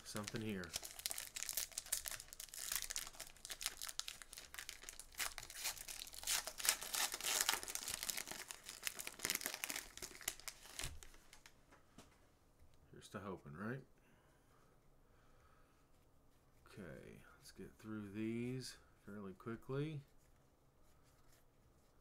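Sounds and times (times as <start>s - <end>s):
plastic wrapper crinkling and tearing: 0.0s - 11.5s.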